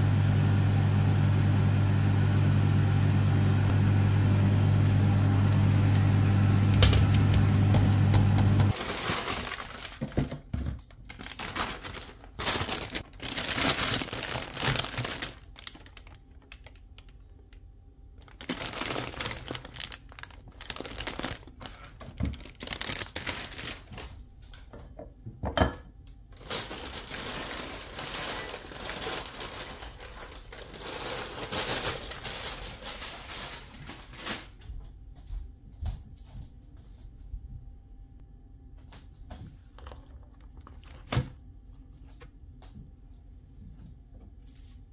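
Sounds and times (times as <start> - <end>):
dishes and utensils knocking: 24.8 - 25.9.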